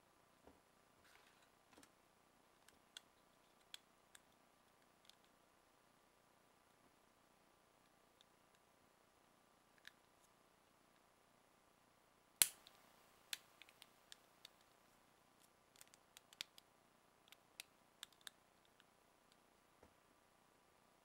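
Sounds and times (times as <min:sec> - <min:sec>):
plastic parts clicking together: 0:17.3 - 0:18.9.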